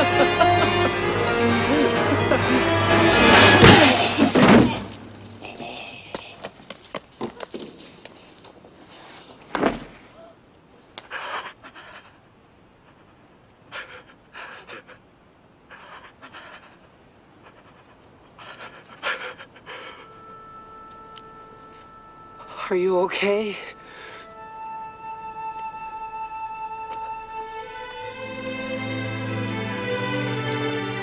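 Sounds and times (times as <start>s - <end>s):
man panting heavily: 11.0s - 12.2s, 12.9s - 15.1s, 15.7s - 20.2s, 23.8s - 24.3s.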